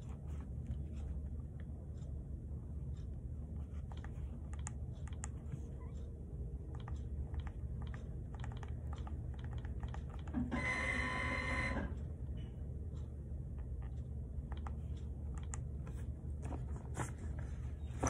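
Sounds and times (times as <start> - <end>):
low steady hum: 0.0 - 18.0
light clicks and taps: 2.9 - 10.4, 12.2 - 17.5.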